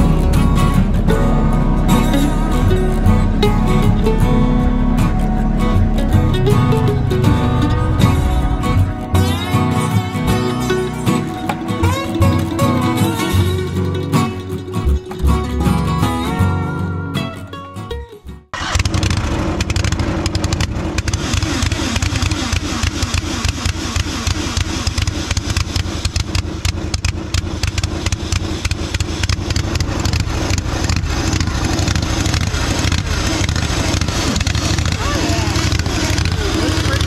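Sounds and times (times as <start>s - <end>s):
engine running with rapid firing beat: 0.0s - 16.5s, 18.5s - 37.0s
guitar music: 0.0s - 18.7s.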